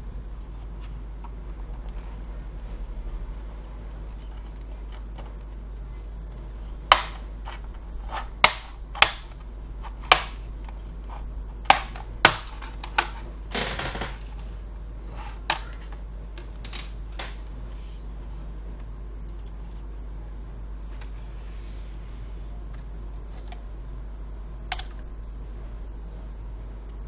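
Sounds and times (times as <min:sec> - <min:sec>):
plastic clips snapping loose: 0:06.9 - 0:10.4, 0:11.6 - 0:13.2, 0:15.4 - 0:17.4, 0:24.7 - 0:25.0.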